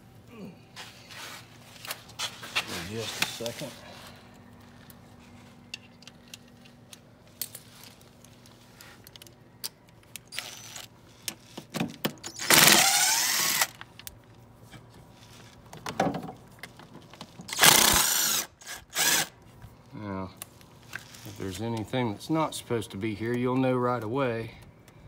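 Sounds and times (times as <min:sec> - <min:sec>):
light clicks of tool handling: 0:05.6 - 0:10.3
impact driver bursts: 0:12.2 - 0:13.8, 0:17.5 - 0:19.4.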